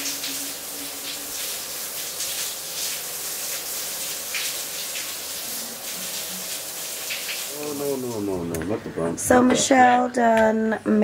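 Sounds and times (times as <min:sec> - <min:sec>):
shower water spraying: 0:00.0 - 0:08.8.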